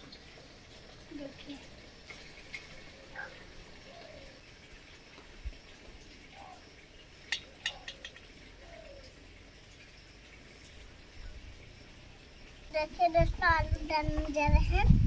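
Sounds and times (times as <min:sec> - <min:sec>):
eggshell clicking against metal pot: 0:07.3 - 0:08.2.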